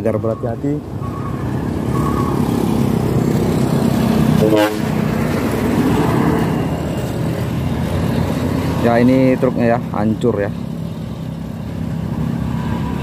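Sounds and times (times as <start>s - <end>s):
truck engine driving past: 0.0s - 13.0s
vehicle horn toot: 4.4s - 5.0s.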